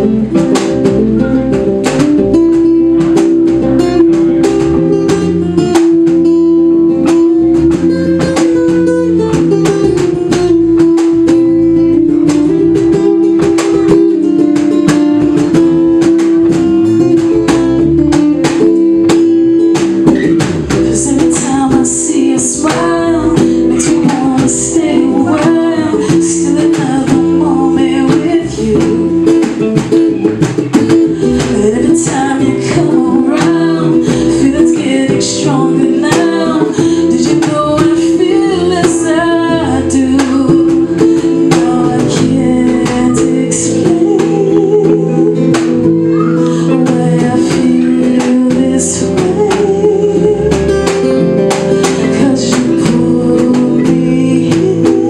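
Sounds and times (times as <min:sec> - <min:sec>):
electric bass: 0:00.0 - 0:55.0
hand drum: 0:00.0 - 0:55.0
person singing: 0:00.0 - 0:55.0
strummed acoustic guitar: 0:00.0 - 0:55.0.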